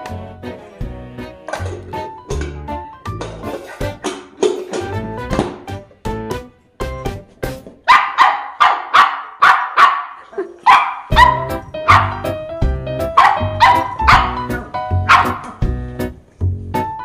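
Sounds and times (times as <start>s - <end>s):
background music with beat: 0.0s - 7.8s, 11.1s - 17.0s
puppy barking sharply: 7.9s - 12.3s, 13.1s - 15.6s.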